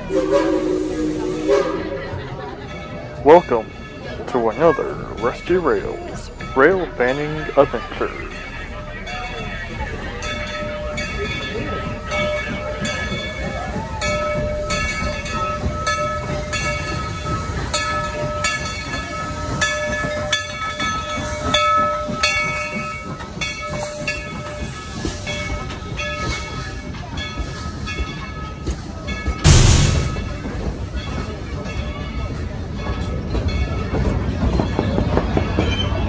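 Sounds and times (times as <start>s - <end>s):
low rumble of train: 0.0s - 36.0s
locomotive bell ringing: 2.1s - 34.8s
short loud burst of noise: 29.5s - 30.5s.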